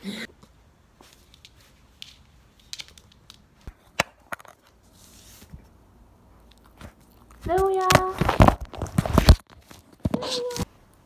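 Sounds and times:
puppy claws clicking on floor: 1.1 - 3.7.

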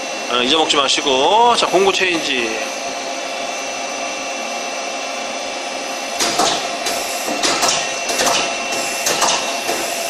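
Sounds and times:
machine humming: 0.0 - 10.0
lathe turret clunks and whirs: 1.6 - 4.4, 5.1 - 10.0.

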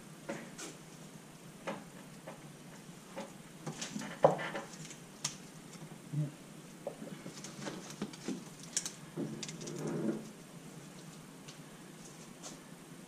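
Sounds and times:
metal parts clicking on a workbench: 8.0 - 9.9.

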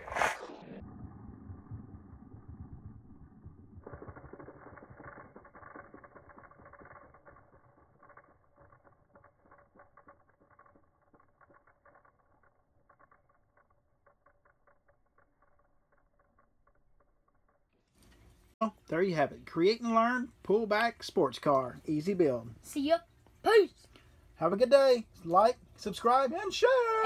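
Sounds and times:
toy car gears clicking: 3.4 - 18.2.

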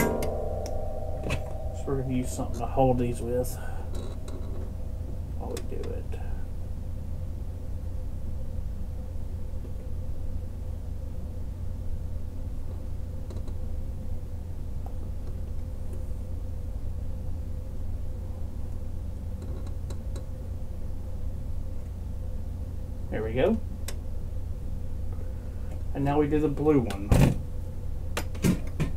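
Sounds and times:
low background rumble: 0.0 - 13.0
faint steady hum: 0.0 - 28.9.

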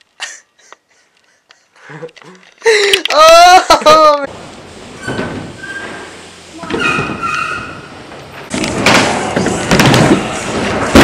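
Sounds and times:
high squeal: 5.0 - 8.0
sharp knocks and thuds: 8.5 - 11.0.

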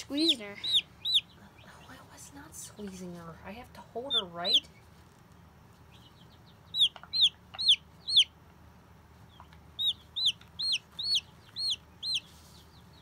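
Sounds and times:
chick peeping loudly: 0.0 - 1.9, 4.0 - 4.8, 5.7 - 8.4, 9.2 - 13.0.

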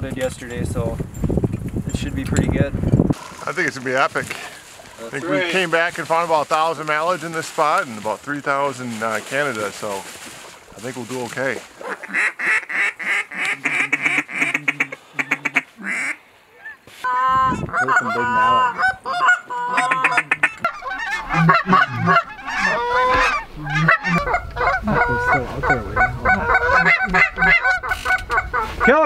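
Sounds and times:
wind rumble on microphone: 0.0 - 4.3, 17.2 - 18.1, 20.3 - 29.0
geese honking: 11.8 - 29.0.

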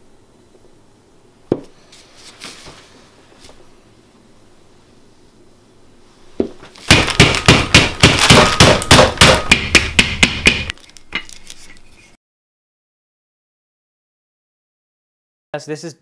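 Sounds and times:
rolling pin pounding butter: 6.8 - 10.8.

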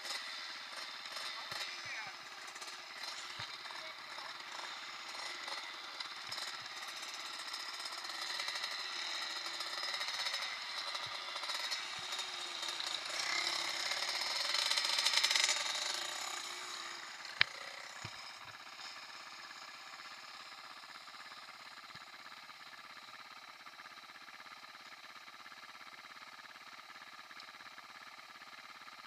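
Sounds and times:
motocross bike engines puttering: 0.0 - 22.4.

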